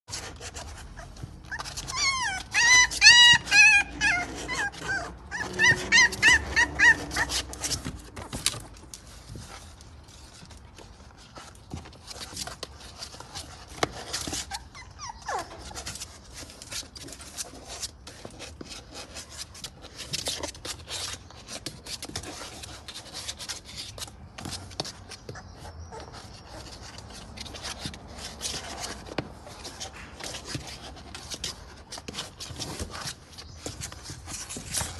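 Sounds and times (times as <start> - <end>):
claws scrabbling on cardboard: 0.1 - 34.9
puppies whining and yelping: 0.2 - 8.9, 11.9 - 34.9.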